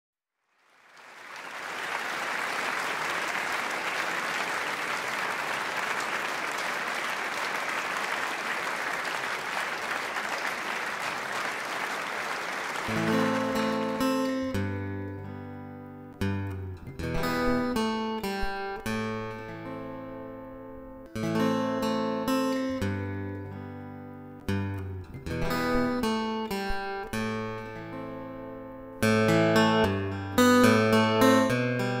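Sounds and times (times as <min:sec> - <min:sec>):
audience applauding: 0:00.5 - 0:14.7
acoustic guitars strumming chords: 0:12.8 - 0:32.0.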